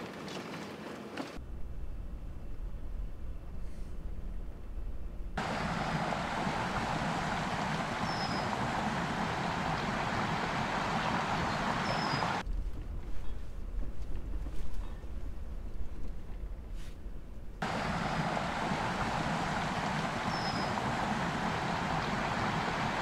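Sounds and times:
low rumble: 0:01.4 - 0:23.0
flowing water rushing: 0:05.4 - 0:12.4, 0:17.6 - 0:23.0
bird chirps: 0:07.9 - 0:08.6, 0:11.2 - 0:12.4, 0:20.2 - 0:20.8.

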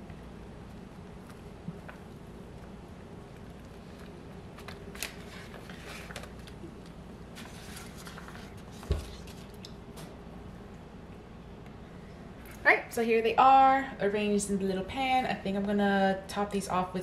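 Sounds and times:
paper rustling and crinkling: 0:03.4 - 0:09.6.

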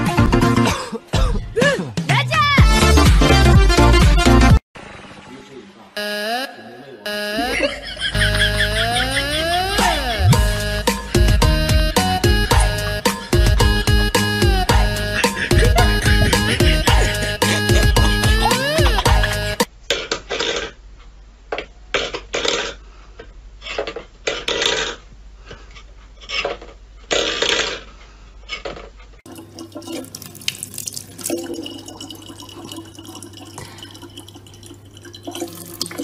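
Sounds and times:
tap water running into plastic bottle: 0:29.3 - 0:36.0.

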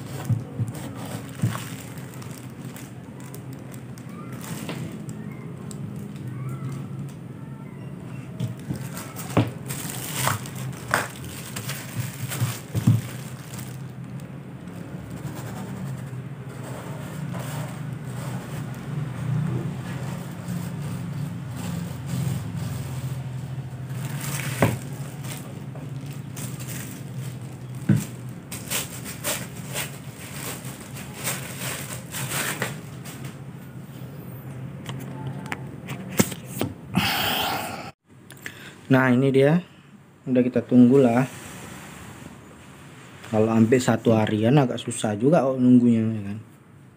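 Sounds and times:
plastic glove crinkling: 0:00.0 - 0:06.4, 0:08.4 - 0:18.9, 0:19.7 - 0:33.4.

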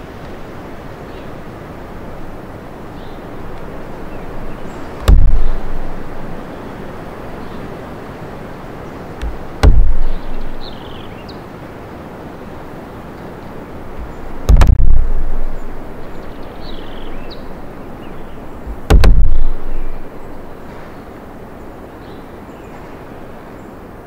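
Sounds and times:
wind through forest: 0:00.0 - 0:24.0
heavy low thump: 0:05.0 - 0:06.3, 0:09.2 - 0:10.6, 0:14.0 - 0:15.7, 0:18.6 - 0:20.1.

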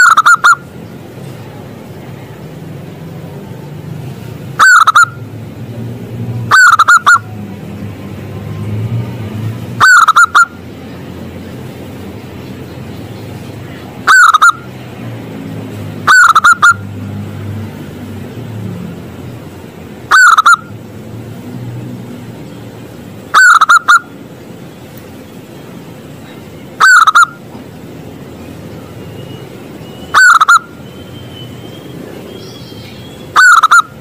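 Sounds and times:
dove cooing: 0:06.5 - 0:07.2, 0:26.8 - 0:27.4.

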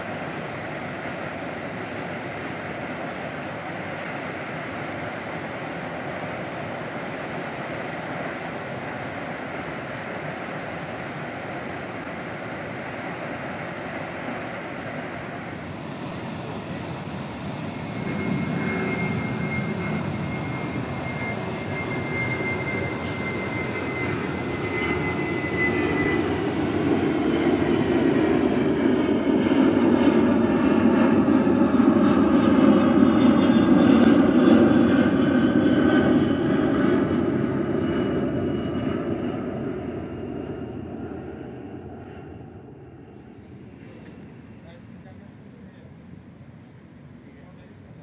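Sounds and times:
jet airliner passing overhead: 0:00.0 - 0:48.0
thin falling whine: 0:17.9 - 0:28.7.

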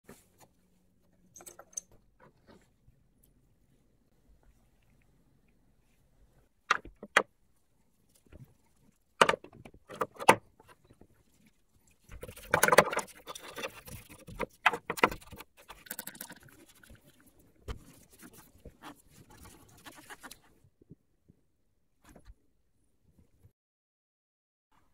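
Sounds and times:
brush scrubbing: 0:15.5 - 0:20.5.

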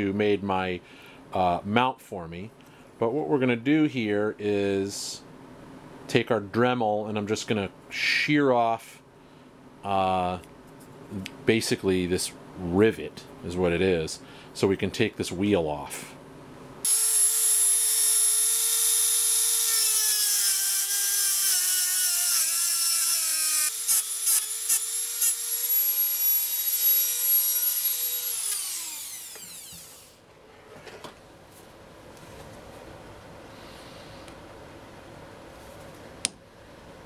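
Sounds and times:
rotary tool grinding metal: 0:16.9 - 0:30.2.

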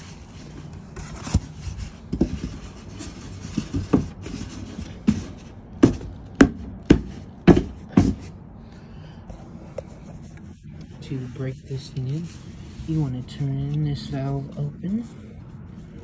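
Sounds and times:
sharp knocks: 0:05.8 - 0:08.3.

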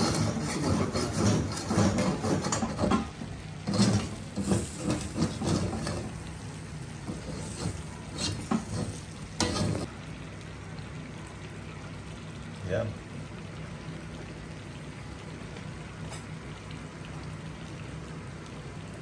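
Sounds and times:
utensils scraping a steel wok: 0:00.0 - 0:06.2, 0:07.0 - 0:09.9
food sizzling in a wok: 0:00.0 - 0:18.8.

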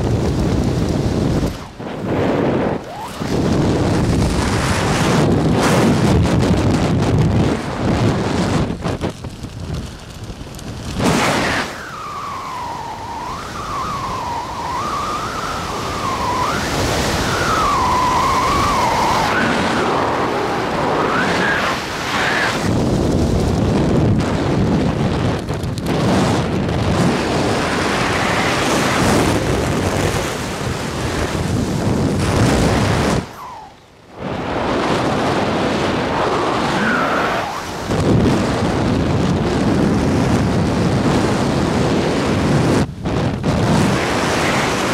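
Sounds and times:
wind buffeting microphone: 0:00.0 - 0:44.9
wavering whistle: 0:11.7 - 0:19.6, 0:33.2 - 0:33.8.

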